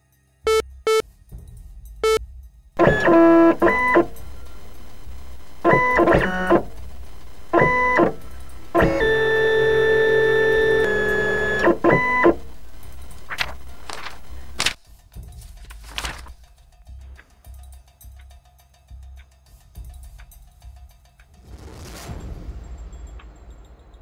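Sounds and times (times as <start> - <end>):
electronic tones: 0.5 - 1.0, 2.8 - 14.7.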